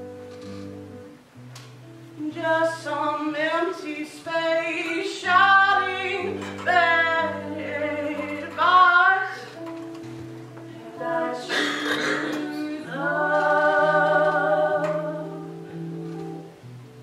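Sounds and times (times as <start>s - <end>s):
held accompaniment chords: 0.0s - 17.0s
woman singing with vibrato: 2.2s - 9.7s, 10.8s - 15.8s.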